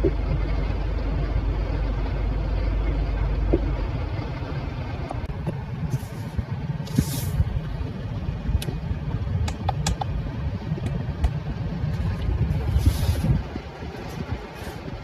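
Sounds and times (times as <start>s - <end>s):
steady low rumble: 0.0s - 15.0s
rubbing hisses: 12.6s - 13.4s.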